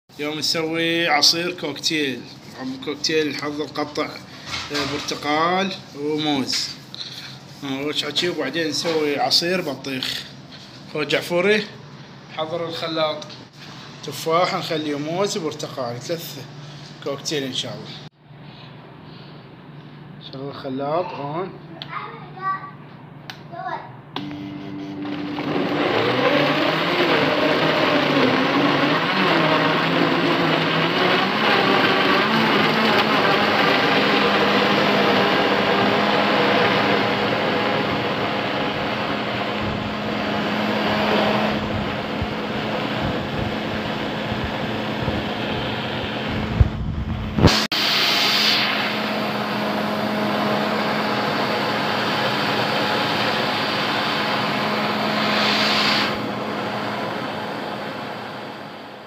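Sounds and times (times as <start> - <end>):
blender pureeing fruit: 24.2 - 46.7, 47.4 - 59.0.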